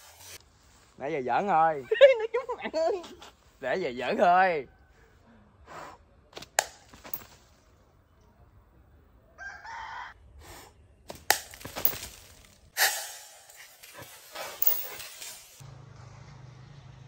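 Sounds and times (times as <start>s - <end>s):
slingshot shot snapping: 11.1s - 12.2s, 12.8s - 13.8s
sharp cracks: 11.1s - 13.9s
glass bottle breaking: 11.2s - 13.8s.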